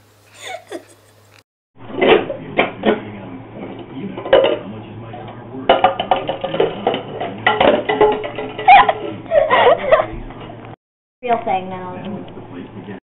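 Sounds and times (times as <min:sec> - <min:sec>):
plastic cups clacking: 0:05.7 - 0:09.2.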